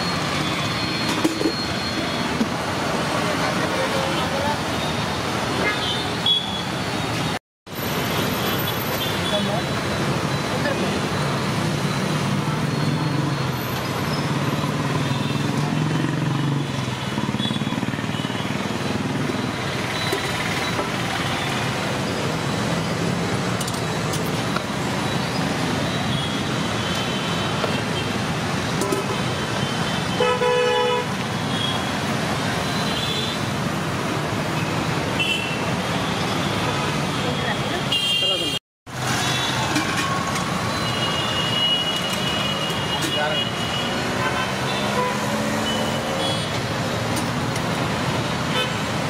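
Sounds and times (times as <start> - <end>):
roadside traffic noise: 0.0 - 49.0
vehicle horn honking: 30.2 - 31.1.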